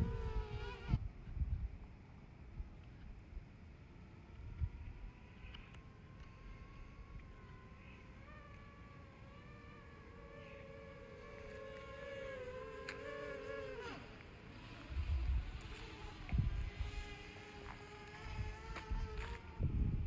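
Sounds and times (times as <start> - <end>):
wind buffeting microphone: 0.0 - 1.9, 14.6 - 20.0
drone propellers humming: 2.4 - 20.0.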